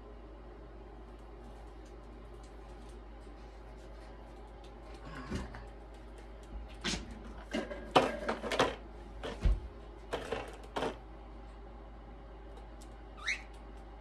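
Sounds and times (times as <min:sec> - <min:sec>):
cockatiel chirp: 0:13.2 - 0:13.6.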